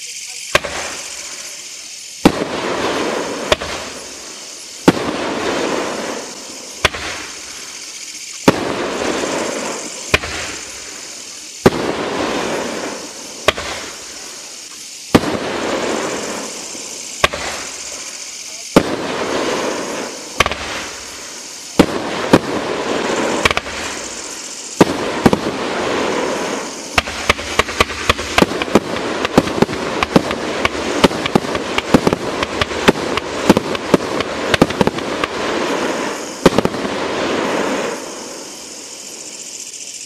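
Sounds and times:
firework hiss and crackle: 0.0s - 40.0s
firework reports and bursts: 0.0s - 40.0s.

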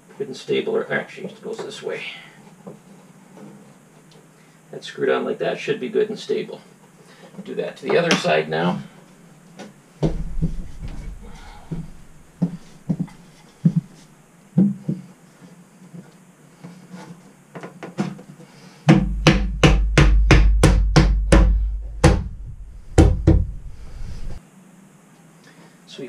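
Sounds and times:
wooden block knocking: 10.0s - 13.9s, 18.9s - 22.4s.

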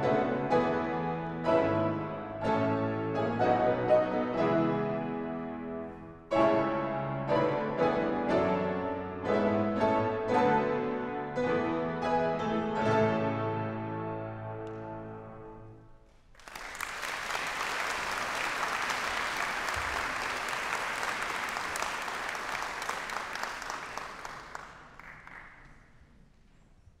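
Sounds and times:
audience applauding: 16.3s - 25.9s.

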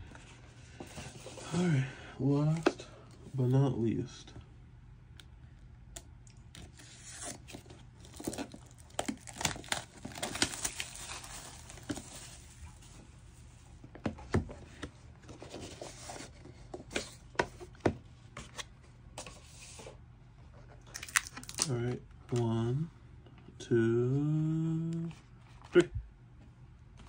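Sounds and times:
plastic shrink wrap tearing: 8.0s - 12.0s, 20.9s - 21.7s.

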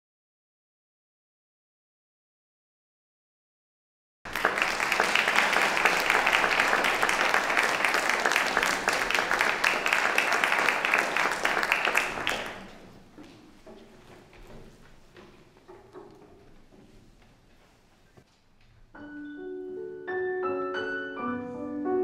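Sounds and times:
audience applauding: 4.3s - 13.1s.

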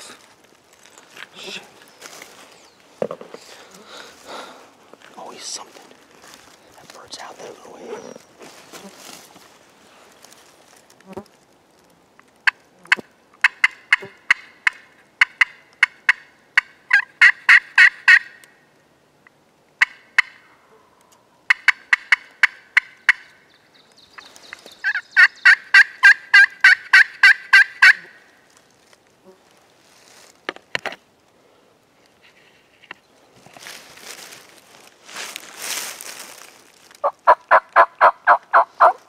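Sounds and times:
distant turkey gobbling: 12.4s - 18.3s, 21.5s - 23.4s, 24.8s - 28.1s, 37.0s - 39.0s
turkey call hen yelps: 16.1s - 18.4s, 24.8s - 28.1s, 37.0s - 39.0s.

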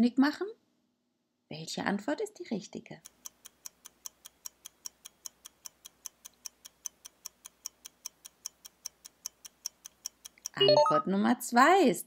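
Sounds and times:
clock ticking: 3.0s - 11.0s.

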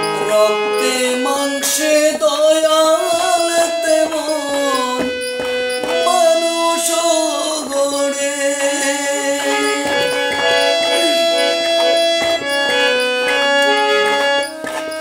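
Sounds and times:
man singing: 0.0s - 5.2s, 5.9s - 11.6s
harmonium melody: 0.0s - 15.0s.

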